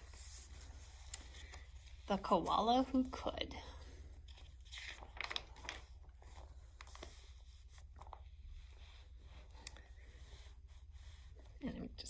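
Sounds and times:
paper pages rustling: 0.0 - 9.6.

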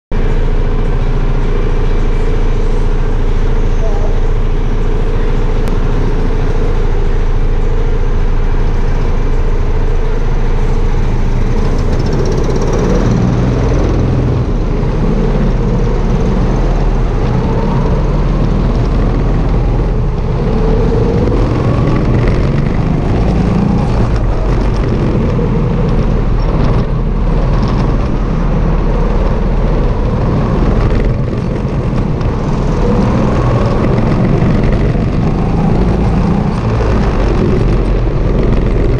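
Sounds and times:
go-kart engines idling: 0.1 - 38.9
go-kart engine revving: 0.2 - 38.9.

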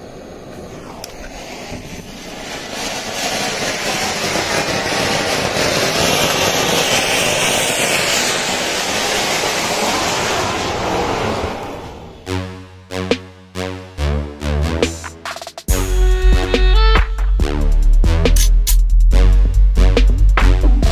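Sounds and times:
fountain firework hissing: 0.0 - 12.2.

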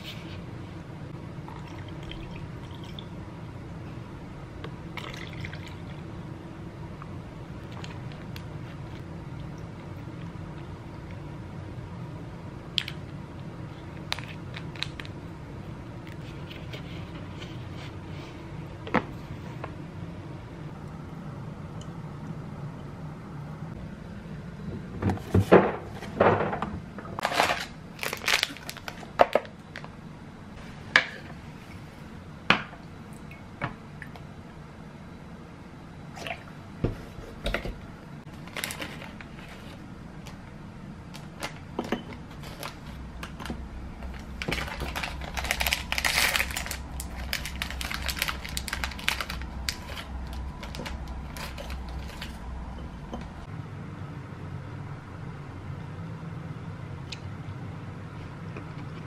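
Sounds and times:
plastic wrappers crinkling: 14.0 - 15.2, 27.2 - 29.5, 38.4 - 39.8, 42.3 - 52.5.

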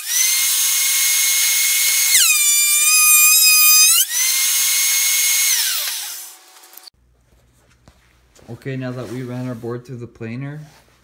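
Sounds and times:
motor winding down: 0.0 - 6.4.

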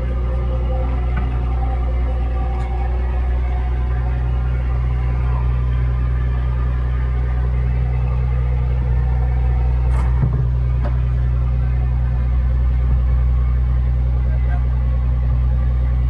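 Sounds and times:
boat engine running: 0.0 - 16.0.

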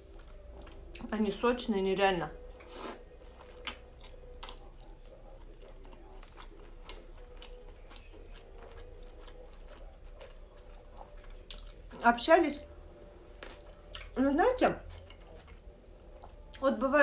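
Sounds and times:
person chewing with wet clicks: 0.0 - 1.1, 2.5 - 12.0, 13.0 - 14.2, 14.8 - 16.6.

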